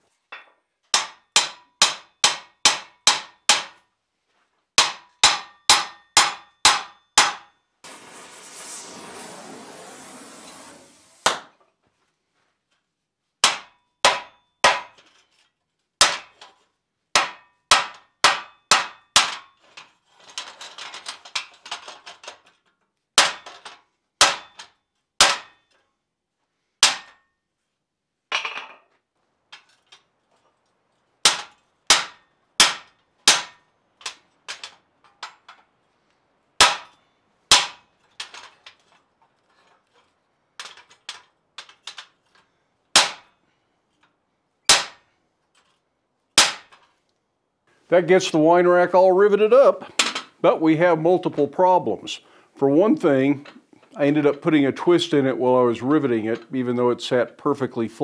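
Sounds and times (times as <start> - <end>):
hammer striking steel rivets: 0.3 - 3.8, 4.8 - 9.0, 10.4 - 11.7, 13.4 - 25.9, 26.8 - 27.4, 31.2 - 35.7, 36.6 - 43.4, 44.0 - 45.8, 46.4 - 46.9, 49.8 - 50.4.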